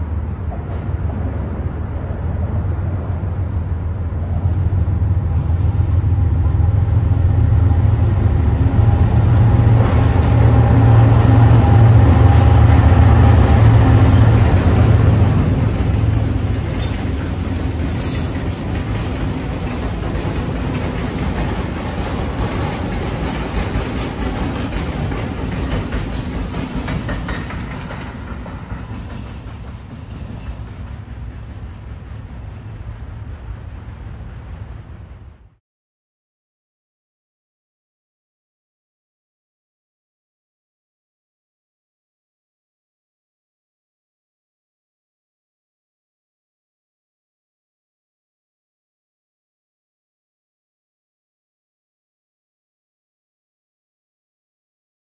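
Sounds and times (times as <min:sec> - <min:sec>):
locomotive engine rumble: 0:00.0 - 0:35.5
train wheels clattering on rails: 0:09.2 - 0:35.0.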